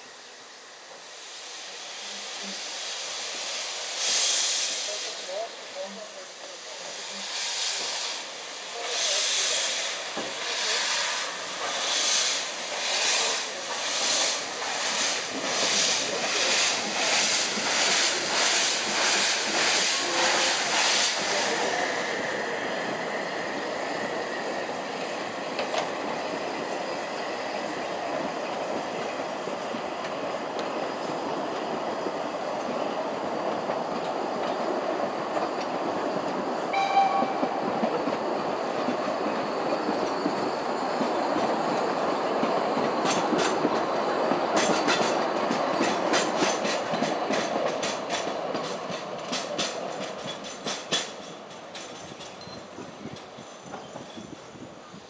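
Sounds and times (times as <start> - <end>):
steam locomotive exhaust chuffing: 7.0 - 24.2.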